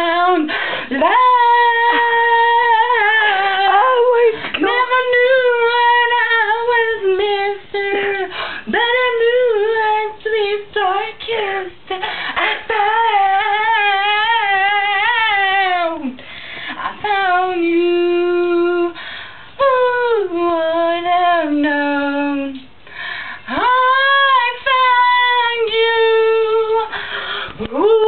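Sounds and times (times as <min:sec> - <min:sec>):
woman singing wordless notes: 0:00.0 - 0:16.2, 0:16.8 - 0:19.0, 0:19.6 - 0:22.7, 0:23.4 - 0:27.0, 0:27.6 - 0:28.0
singer breathing: 0:00.5 - 0:00.9, 0:12.0 - 0:12.5, 0:16.2 - 0:16.8, 0:19.0 - 0:19.6, 0:22.8 - 0:23.5, 0:26.9 - 0:27.6.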